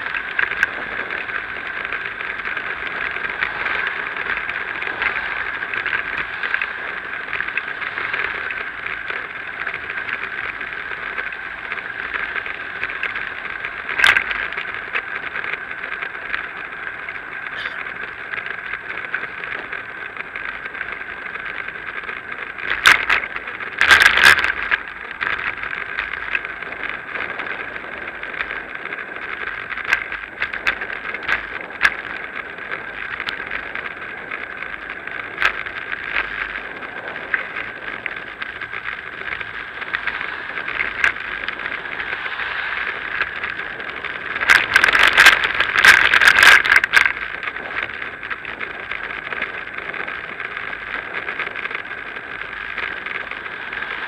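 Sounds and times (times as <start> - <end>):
bicycle rattling over bumps: 0.0 - 54.0
hiss of wind and tyres: 39.4 - 44.3.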